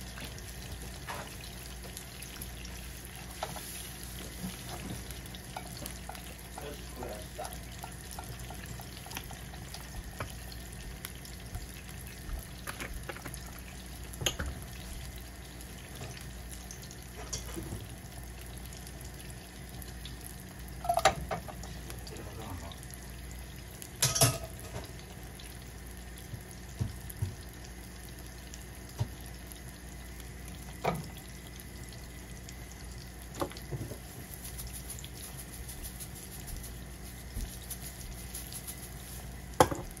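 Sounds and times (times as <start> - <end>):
fish sizzling in a pan: 0.0 - 40.0
cookware knocking and clinking: 24.0 - 24.5.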